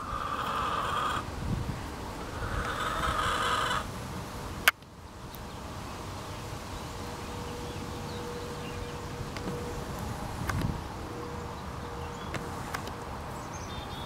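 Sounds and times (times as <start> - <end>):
hen squawking: 0.0 - 1.3, 2.3 - 3.9
faint steady hum: 0.0 - 14.0.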